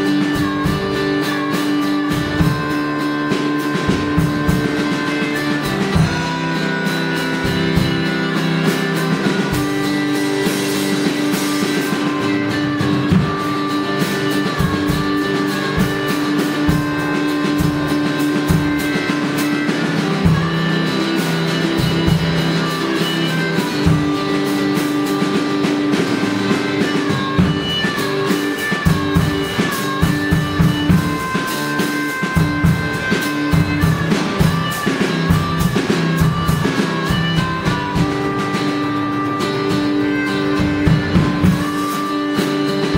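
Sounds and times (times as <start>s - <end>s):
drums steady beat: 0.0s - 42.9s
electric guitar shuffle rhythm: 0.0s - 42.9s
harmonica wailing: 0.0s - 42.9s.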